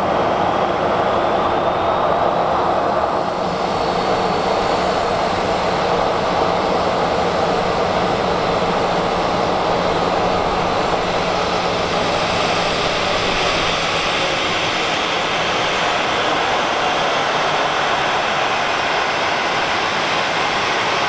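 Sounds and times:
jet engines taxiing: 0.0s - 21.0s.

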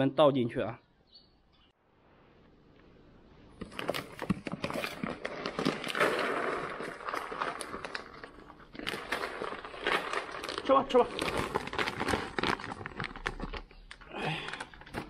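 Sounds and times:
plastic bag rustling: 3.5s - 15.0s.

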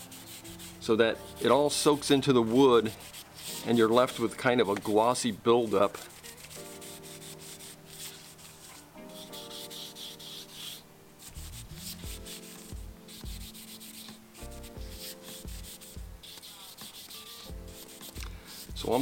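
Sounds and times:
background music: 0.0s - 19.0s
cloth rubbing on wooden rim: 0.0s - 19.0s
steady beat: 11.4s - 13.6s.

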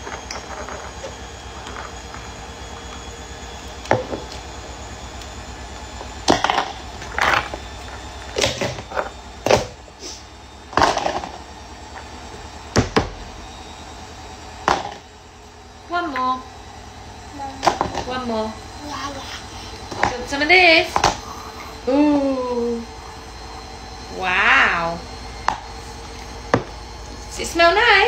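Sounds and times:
low steady hum: 14.4s - 28.0s.

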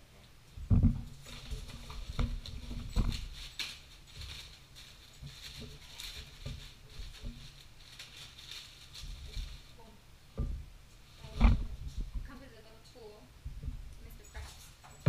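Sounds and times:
packing material crinkling: 0.6s - 10.1s, 11.0s - 12.4s.

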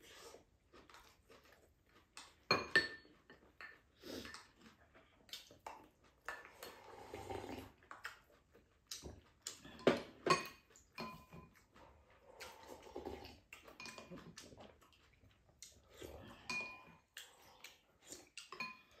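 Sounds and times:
slurping: 0.0s - 2.5s, 3.2s - 19.0s
chopsticks clinking on ceramic bowls: 9.8s - 11.5s, 16.4s - 17.0s.

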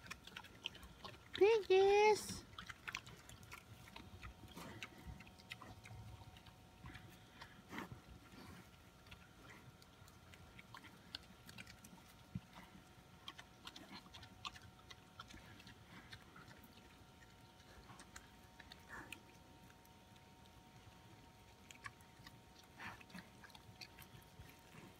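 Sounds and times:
pigs chewing food: 0.0s - 24.9s.

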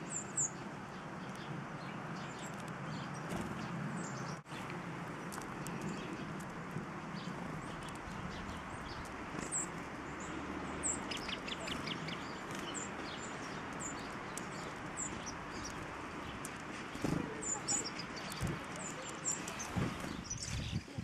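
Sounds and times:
songbirds chirping: 0.0s - 21.0s
ticking bird notes: 7.2s - 19.7s.

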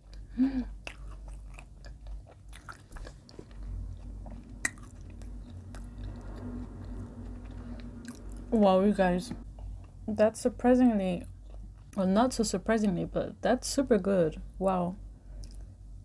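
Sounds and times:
chewing and biting bread: 0.0s - 8.5s, 11.2s - 12.0s.

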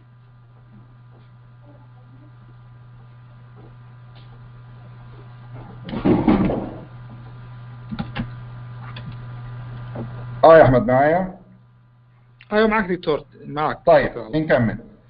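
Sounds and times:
loud muffled noise: 0.0s - 11.8s
low electrical hum: 0.0s - 15.0s.

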